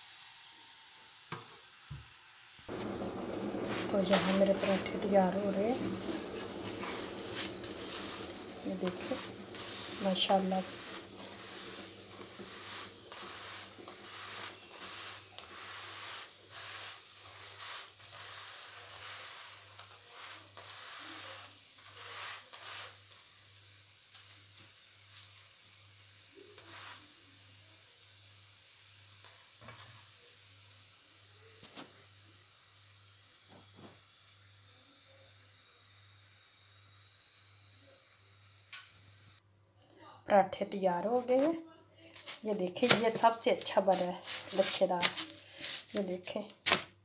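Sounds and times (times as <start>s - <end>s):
flatbread sizzling in oil: 0.0s - 39.4s, 42.2s - 46.9s
tongs scraping a pan: 3.7s - 19.6s.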